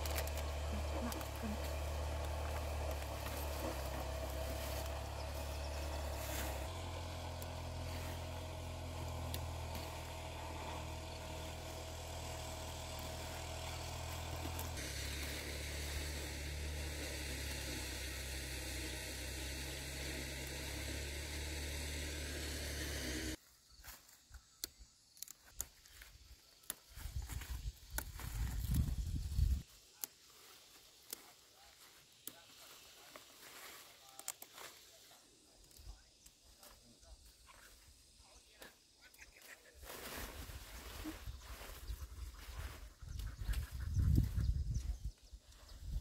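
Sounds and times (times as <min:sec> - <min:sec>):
rustles and snaps of vines: 0:00.0 - 0:10.4, 0:23.8 - 0:36.8.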